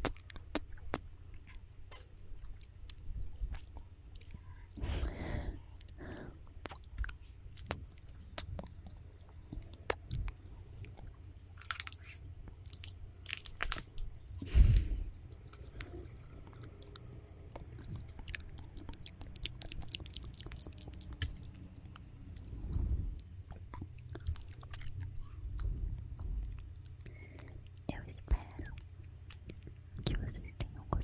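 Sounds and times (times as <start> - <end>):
tongue clicks: 0.0 - 4.8, 6.6 - 11.0, 15.3 - 31.0
wet lip smacks: 6.6 - 11.0, 15.3 - 28.6, 29.2 - 30.8
low thud: 14.4 - 15.1.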